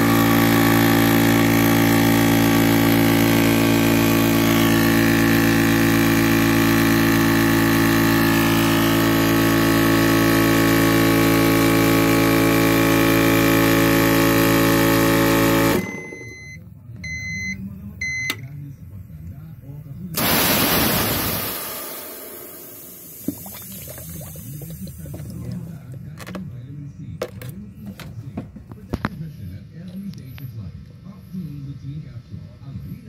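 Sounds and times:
air compressor running: 0:00.0 - 0:16.3, 0:20.1 - 0:26.5.

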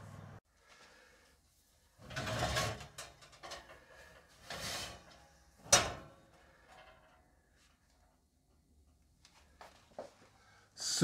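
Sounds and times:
oven rack sliding out: 0:02.0 - 0:03.1, 0:04.4 - 0:06.1.

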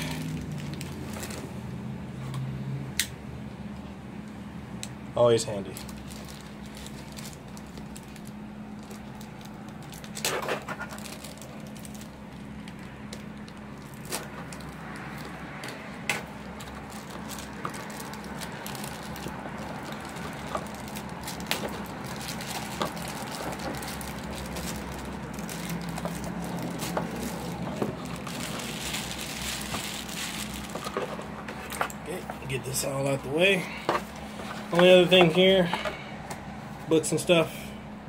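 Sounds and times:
plastic bag crinkling: 0:00.0 - 0:01.6, 0:05.7 - 0:32.6
steady low hum: 0:00.0 - 0:38.0
sharp crackles and clicks: 0:05.8 - 0:31.1.

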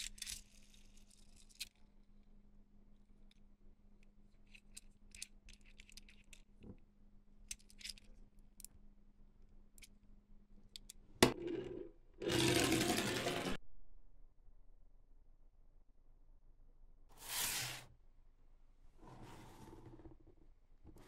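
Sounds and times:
plastic toys clicking and rattling: 0:04.4 - 0:06.6.

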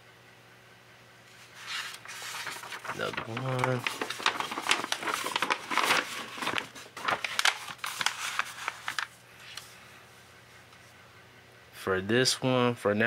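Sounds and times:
paper pages rustling: 0:01.3 - 0:09.7.

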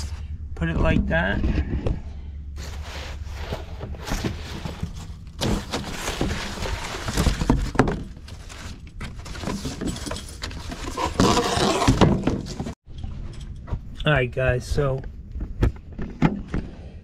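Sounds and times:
cardboard scraping on metal: 0:02.6 - 0:12.8.

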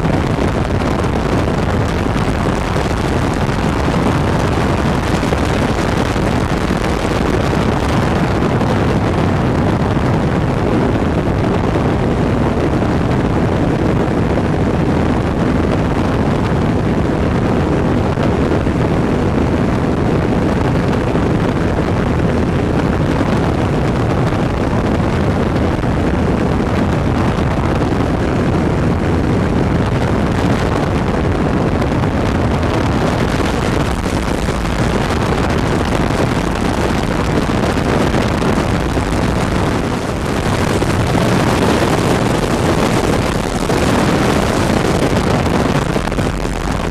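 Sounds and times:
aircraft engine running: 0:00.0 - 0:46.9
wind rush on microphone: 0:00.0 - 0:46.9.

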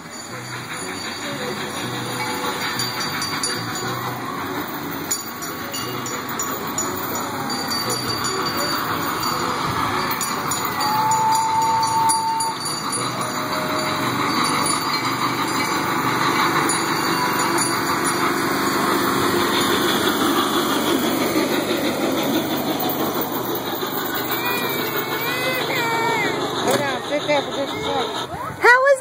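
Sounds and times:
small train engine running: 0:00.0 - 0:29.0.

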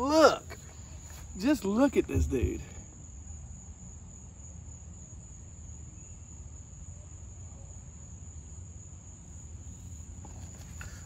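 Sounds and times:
insects trilling: 0:00.0 - 0:11.0.

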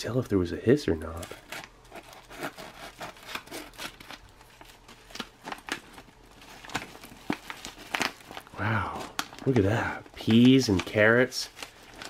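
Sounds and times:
foil crinkling: 0:00.8 - 0:12.0
knife cutting foil pouch: 0:01.1 - 0:09.6.

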